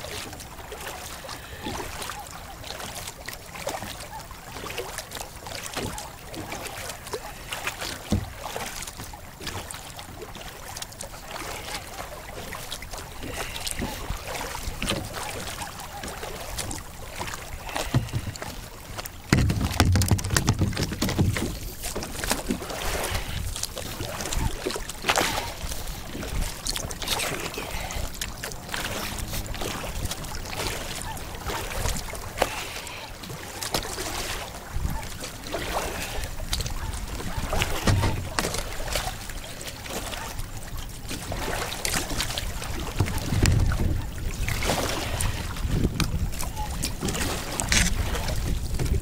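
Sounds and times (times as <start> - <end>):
paddle splashing into water: 0.0 - 49.0
water trickling off paddle: 0.0 - 49.0
wind rumble on microphone: 42.0 - 49.0.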